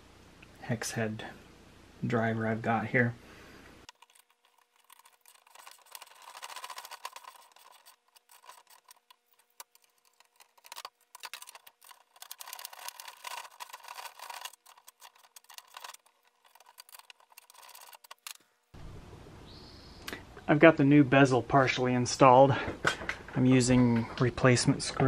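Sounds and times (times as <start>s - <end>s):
faint steady hum: 0.0s - 6.5s.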